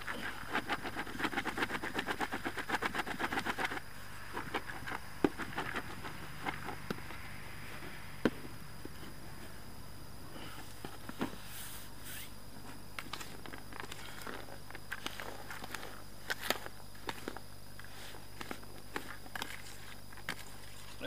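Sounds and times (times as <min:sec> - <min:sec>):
bait rustling in a bowl: 0:13.1 - 0:21.0.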